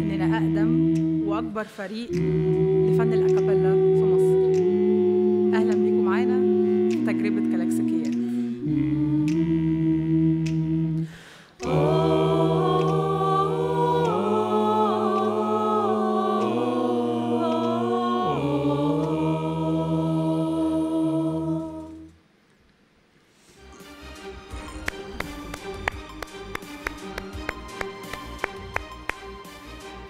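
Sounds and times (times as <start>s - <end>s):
choir singing a cappella: 0.0s - 22.2s.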